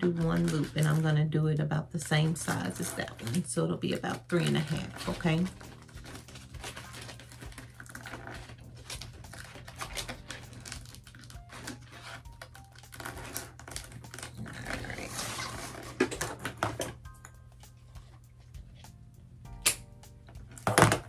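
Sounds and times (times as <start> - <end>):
plastic ribbon crinkling: 0.0 - 1.2, 2.0 - 17.1.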